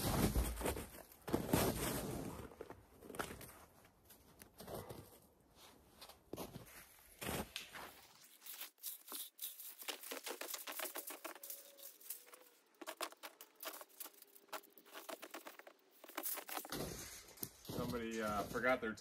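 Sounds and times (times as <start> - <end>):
footsteps crunching through snow: 5.6 - 19.0.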